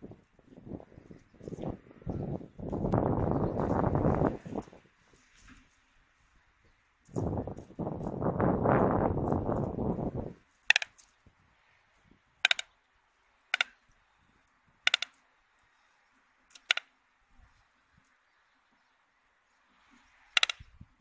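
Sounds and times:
short sharp clicks: 0:12.4 - 0:12.7
stork bill-clattering: 0:12.4 - 0:12.7, 0:14.9 - 0:15.2.

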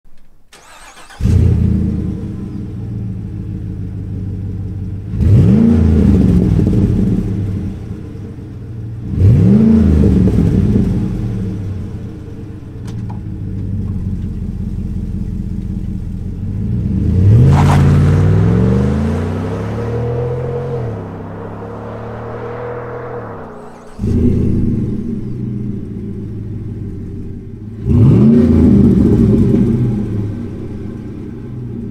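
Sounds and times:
car engine idling and revving: 0:00.2 - 0:31.9
car accelerating through gears: 0:05.1 - 0:08.0, 0:09.0 - 0:12.0, 0:16.4 - 0:31.9.

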